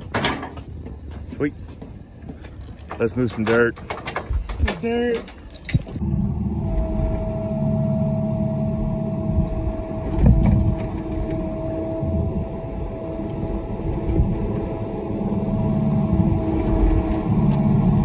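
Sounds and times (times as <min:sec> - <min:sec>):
constant high whine: 0:00.0 - 0:18.0
excavator diesel engine running: 0:00.0 - 0:18.0.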